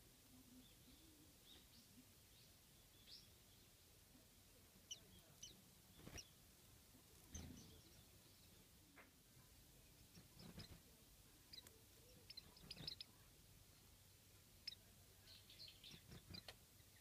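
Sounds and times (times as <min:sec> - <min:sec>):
bird chirps: 0:07.3 - 0:08.6, 0:10.0 - 0:10.8, 0:11.5 - 0:13.2, 0:14.6 - 0:17.0.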